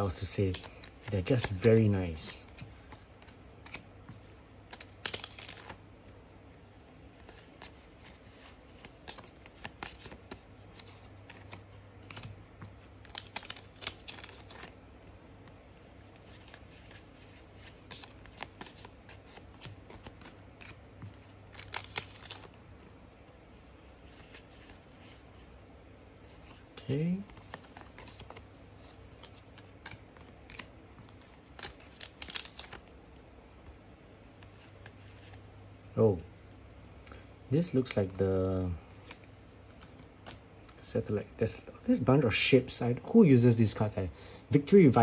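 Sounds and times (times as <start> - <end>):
cards flicking and clicking: 0.2 - 5.8, 7.0 - 22.6, 27.2 - 35.4.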